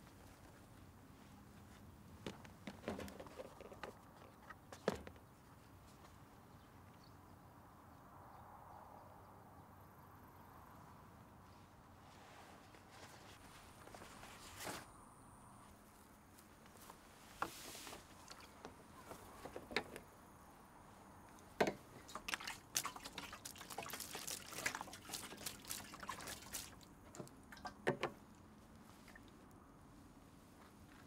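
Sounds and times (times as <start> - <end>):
liquid pouring into metal drum: 22.2 - 26.8.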